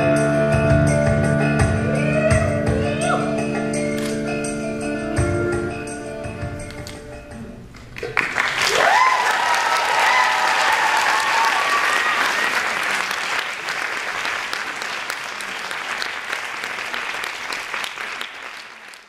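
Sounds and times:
high held cheer: 1.8 - 3.4, 8.1 - 14.9
audience applauding: 7.8 - 19.0.

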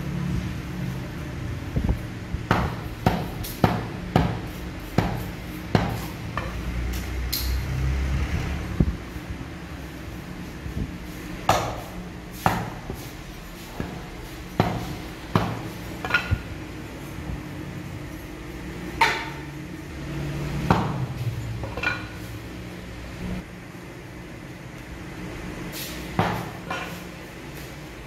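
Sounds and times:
meat cleaver chopping on wood: 2.5 - 6.1.

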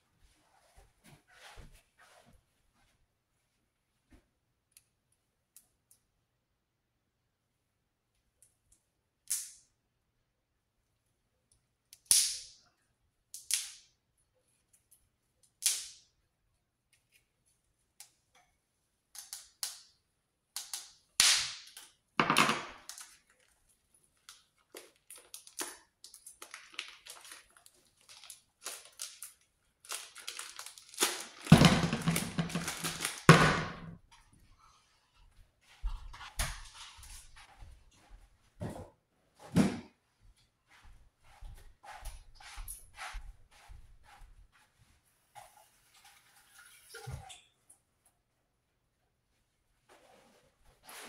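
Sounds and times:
plastic crinkling: 22.8 - 33.4
knife slitting plastic wrapper: 25.0 - 33.3
frozen meat knocking into pan: 31.4 - 34.0.

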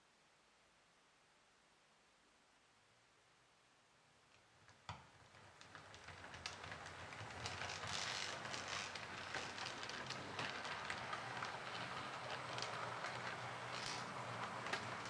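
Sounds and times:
wheel clicks over rail joints: 5.2 - 15.0
model train rattling on track: 5.4 - 15.0.

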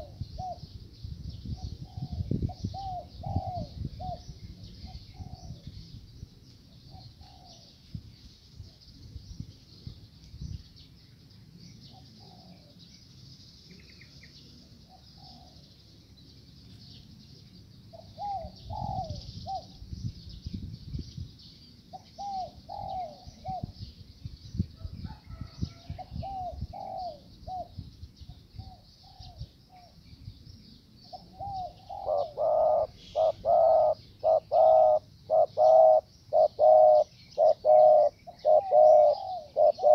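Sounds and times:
doves cooing: 1.8 - 4.2, 6.9 - 7.7, 11.9 - 12.8, 17.9 - 19.7, 21.9 - 23.7, 25.2 - 27.7, 31.1 - 39.9.

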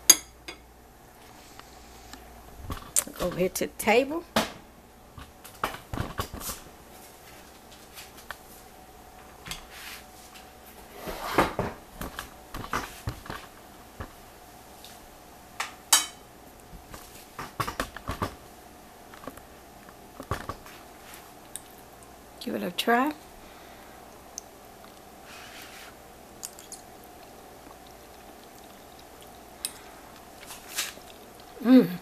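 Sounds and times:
faint steady hum: 0.0 - 32.0.

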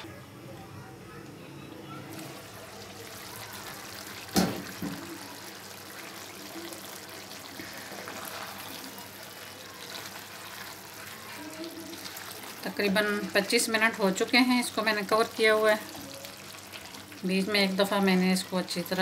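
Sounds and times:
curry bubbling: 2.0 - 19.0
wooden spoon stirring gravy: 2.2 - 17.2.

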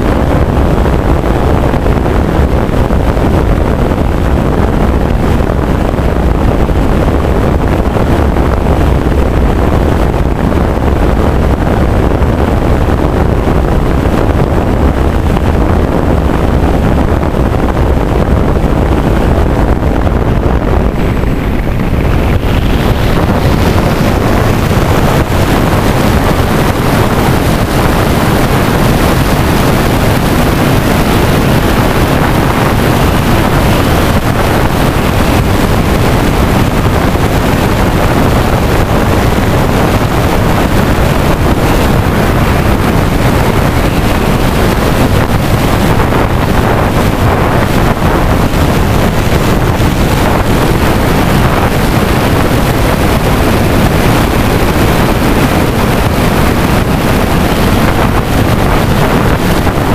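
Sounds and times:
wind buffeting microphone: 0.0 - 59.9.

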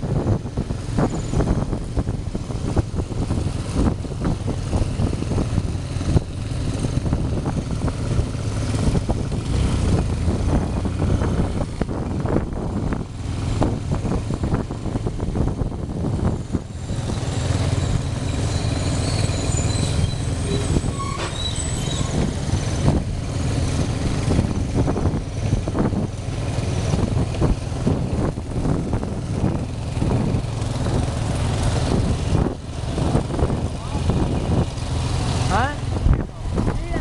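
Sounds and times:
motorcycle engine running: 0.0 - 20.7, 22.1 - 37.0
road and wind noise: 0.0 - 37.0.

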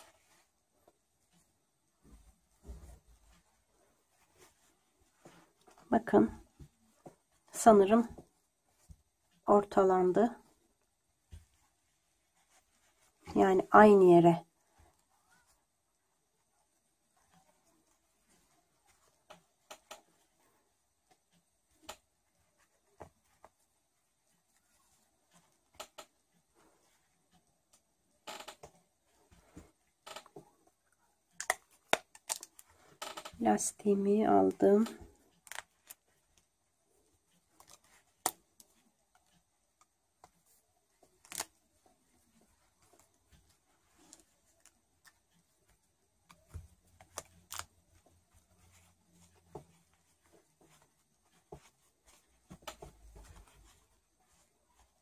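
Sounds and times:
hands rustling yarn: 0.0 - 55.0.

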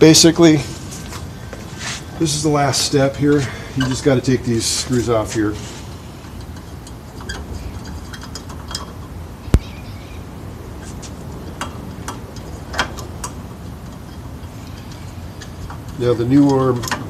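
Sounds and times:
light metallic ticks and clicks: 6.2 - 9.7, 11.3 - 17.0.

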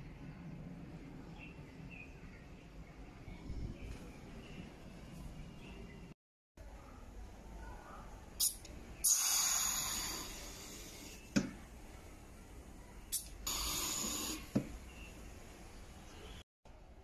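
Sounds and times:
compressed air hissing: 8.4 - 11.3, 13.1 - 14.6.

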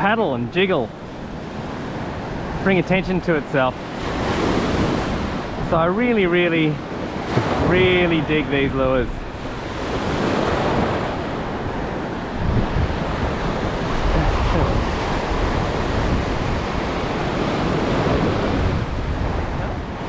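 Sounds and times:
small waves breaking on sand: 0.9 - 20.0
wind rumbling on microphone: 3.8 - 20.0.

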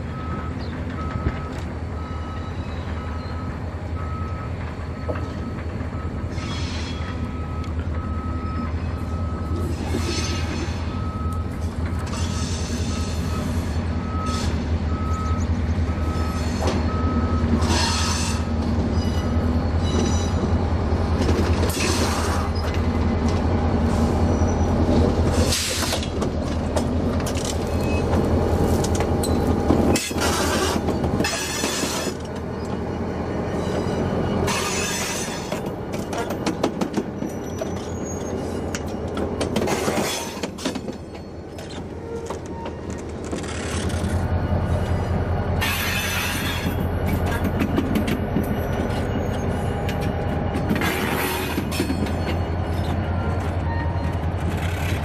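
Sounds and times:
reversing alarm beeping: 0.1 - 20.6, 44.2 - 50.8.

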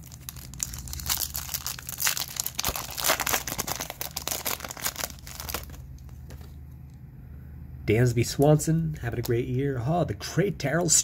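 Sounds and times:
foil wrapper tearing and crinkling: 0.0 - 5.9.

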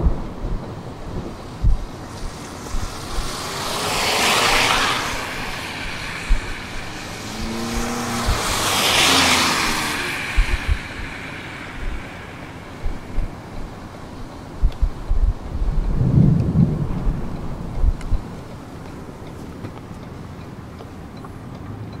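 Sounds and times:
steady low tones: 0.0 - 19.2
vehicles passing on road: 0.0 - 22.0.

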